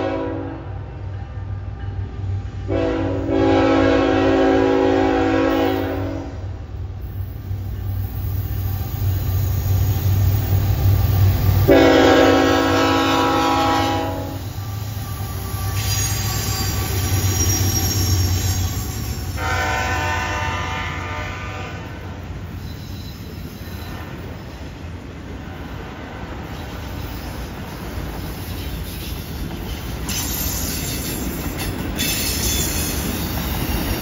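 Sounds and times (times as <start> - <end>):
locomotive horn blasts: 0.0 - 0.7, 2.7 - 6.4, 11.7 - 14.6, 19.3 - 22.1
train wheel squeal: 7.0 - 11.8, 13.2 - 20.5, 22.0 - 24.8, 26.4 - 34.0.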